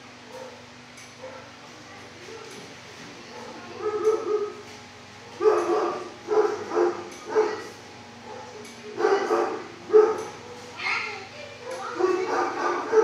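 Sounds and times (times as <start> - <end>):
dogs barking: 0.2 - 1.6, 3.2 - 4.7, 5.4 - 13.0.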